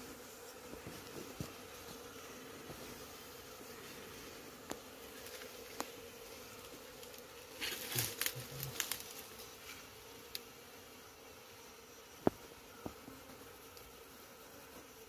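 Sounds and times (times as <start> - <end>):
honeybees buzzing: 0.0 - 15.0
crackling and rustling: 4.6 - 10.4.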